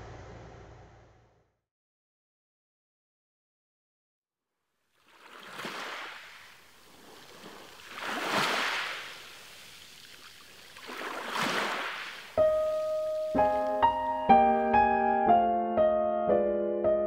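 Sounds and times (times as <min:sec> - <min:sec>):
ocean waves washing ashore: 0:05.0 - 0:14.1
piano playing: 0:12.4 - 0:17.0.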